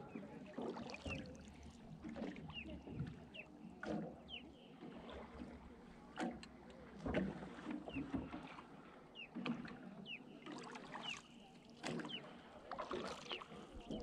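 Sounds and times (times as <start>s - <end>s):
paddle splashing in water: 0.0s - 14.0s
paddle knocks: 6.2s - 8.5s.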